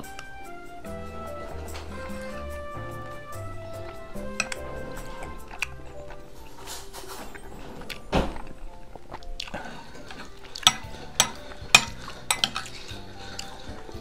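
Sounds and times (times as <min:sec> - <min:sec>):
soft background music: 0:00.0 - 0:14.0
metal spoon scraping a bowl: 0:10.6 - 0:12.9.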